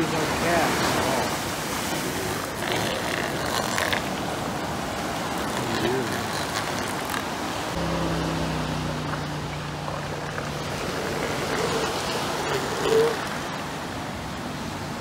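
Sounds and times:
surf: 0.0s - 15.0s
elephant seals calling: 0.8s - 4.4s, 5.2s - 13.8s
low hum: 7.8s - 12.6s.

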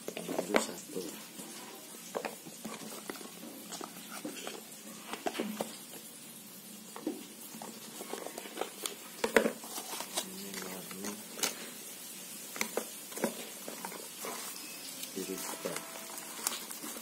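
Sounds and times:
packaging rustling: 1.9s - 6.1s, 7.0s - 17.0s
cardboard boxes being handled: 2.1s - 5.7s, 7.6s - 11.5s, 12.6s - 17.0s.

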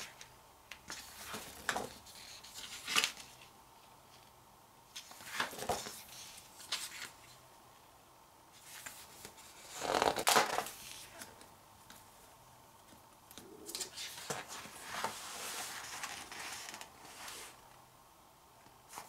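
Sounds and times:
pages rustling: 0.0s - 4.3s, 4.9s - 7.4s, 8.5s - 12.1s, 12.8s - 17.6s
soft handling sounds: 10.6s - 17.8s.

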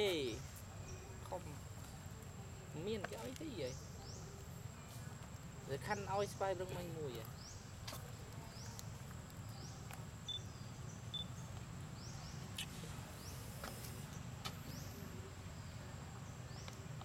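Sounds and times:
high insect drone: 9.0s - 16.7s.

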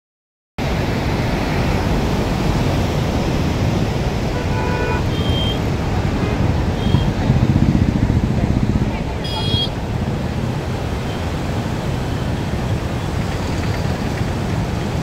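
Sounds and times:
motorcycles and cars passing: 0.6s - 15.0s.

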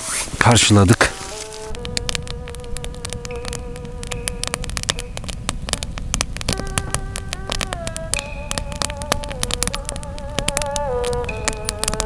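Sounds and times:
campfire crackling and popping: 0.0s - 12.0s.

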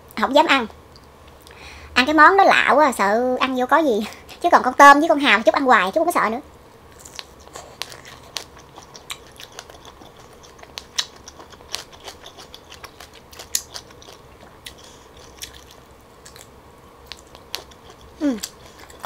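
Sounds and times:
chewing: 6.9s - 19.0s.

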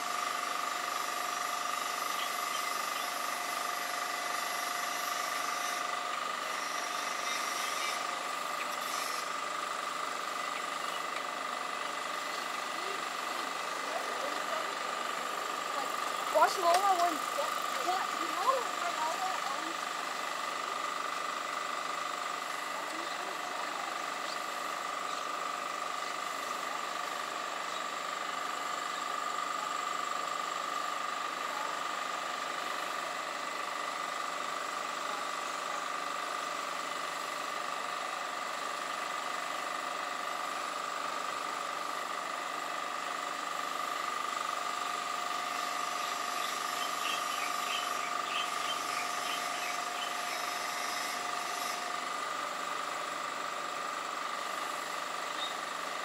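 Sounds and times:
continuous high-pitched tones: 0.0s - 20.2s, 45.5s - 52.0s.

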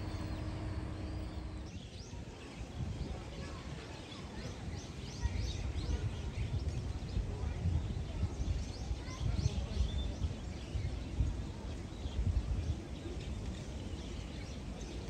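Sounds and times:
low steady rumble: 0.0s - 1.7s.

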